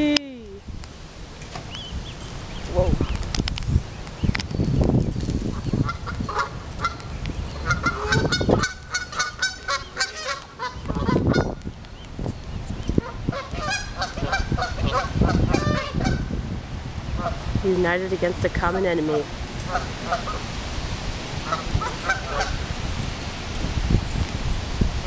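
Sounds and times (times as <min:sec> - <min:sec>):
geese honking: 0:05.5 - 0:11.7, 0:13.0 - 0:16.3, 0:19.6 - 0:20.5, 0:21.4 - 0:22.7.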